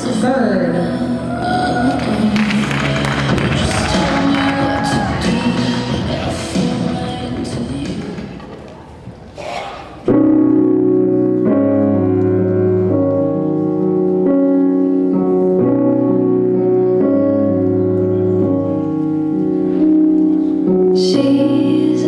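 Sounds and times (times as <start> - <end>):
slow piano chords: 10.0 - 22.0.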